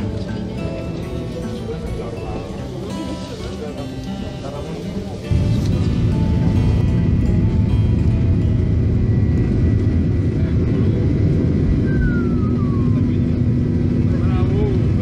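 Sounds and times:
wheels rumbling on runway: 0:04.2 - 0:15.0
jet engines at takeoff power: 0:05.4 - 0:15.0.

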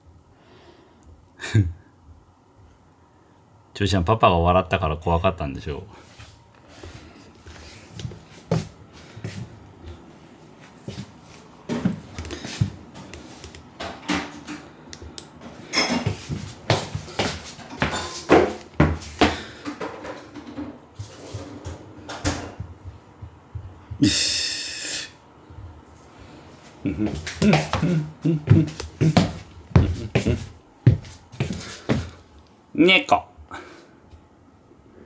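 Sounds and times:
kitchen knocks and clinks: 0:15.6 - 0:16.2, 0:17.6 - 0:22.6.

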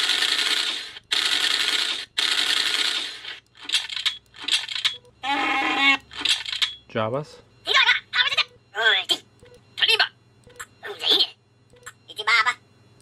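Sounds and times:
automatic gunfire sound effect: 0:00.0 - 0:03.4
electrical hum: 0:00.0 - 0:13.0.

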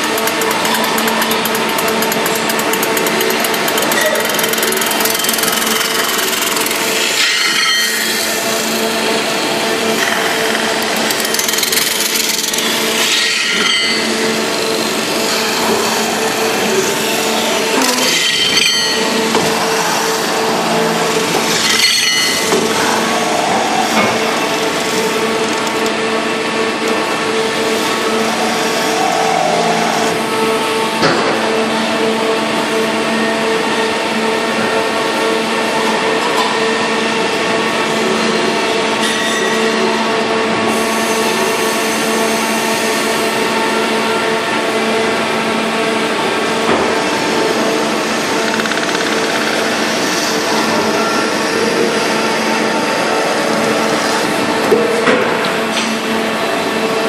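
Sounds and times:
metal spinning lathe running: 0:00.0 - 0:57.0.

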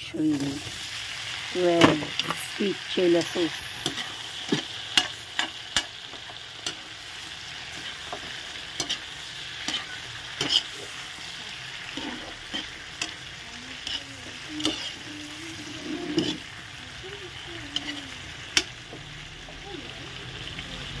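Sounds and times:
shrimp sizzling in butter: 0:00.1 - 0:21.0
metal spatula scraping pan: 0:03.2 - 0:16.7, 0:17.3 - 0:18.7.

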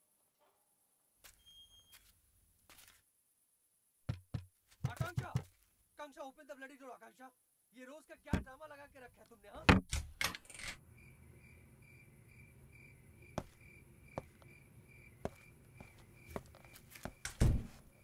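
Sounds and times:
crickets chirping: 0:10.8 - 0:18.0.

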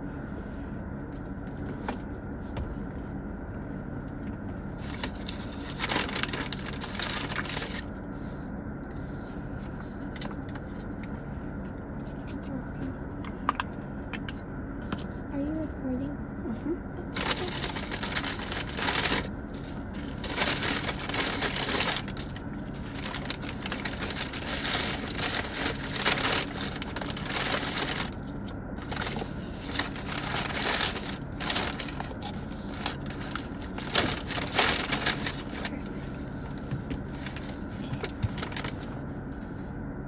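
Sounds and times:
faint low hum: 0:00.0 - 0:40.0
paper bag and wrappers rustling: 0:04.8 - 0:08.2, 0:17.1 - 0:39.6.

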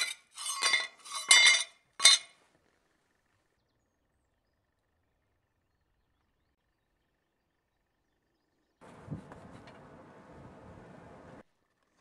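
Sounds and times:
steel plates clinking: 0:00.0 - 0:02.4.

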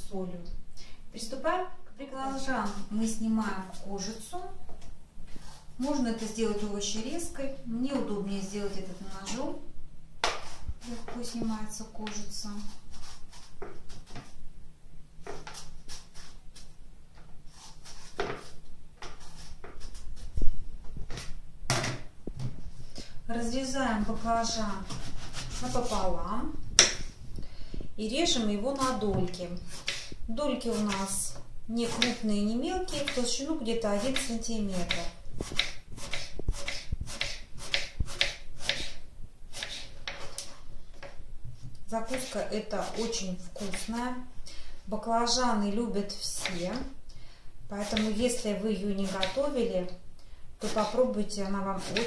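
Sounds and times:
knife scraping eggplant skin: 0:02.2 - 0:04.3, 0:05.3 - 0:07.2, 0:08.4 - 0:09.5, 0:10.2 - 0:14.4, 0:15.2 - 0:16.7, 0:17.5 - 0:20.4, 0:24.0 - 0:26.2, 0:28.7 - 0:40.7, 0:42.0 - 0:44.0, 0:46.3 - 0:46.9, 0:47.8 - 0:49.7, 0:50.6 - 0:52.0
knife slicing on cutting board: 0:35.0 - 0:39.0, 0:39.6 - 0:40.5.

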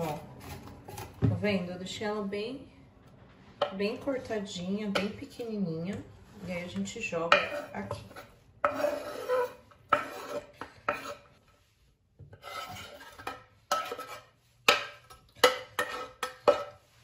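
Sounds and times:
knife scraping wooden board: 0:07.4 - 0:11.3, 0:12.3 - 0:16.7.

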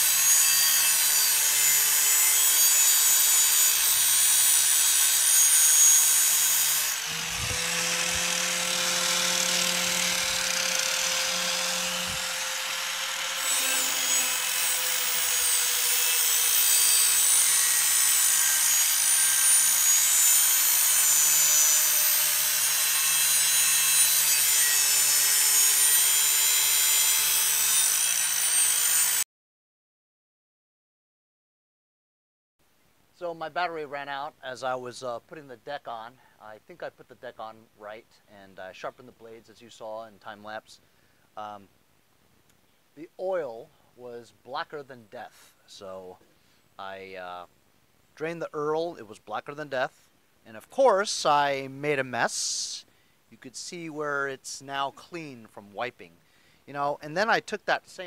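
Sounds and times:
electric grinder whining: 0:00.0 - 0:29.2
metal grinding hiss: 0:00.0 - 0:29.2.

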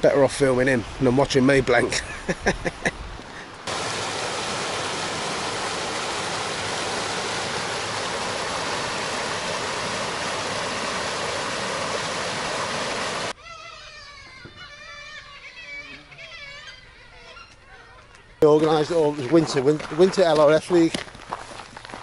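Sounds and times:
river rushing over rocks: 0:03.6 - 0:13.3.

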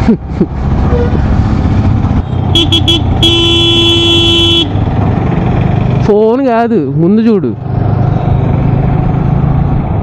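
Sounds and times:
motorcycle horn toots: 0:02.2 - 0:04.8
long horn blast: 0:02.5 - 0:04.7.

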